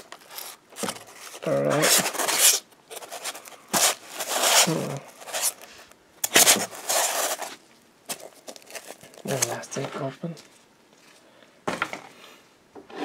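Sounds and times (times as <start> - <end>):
styrofoam blocks scraping: 0.0 - 10.1
tape and plastic wrap crinkling: 0.0 - 11.2.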